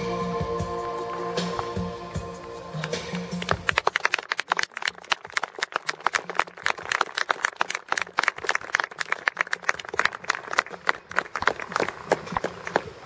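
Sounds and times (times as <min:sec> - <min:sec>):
audience applause: 0:03.3 - 0:13.0.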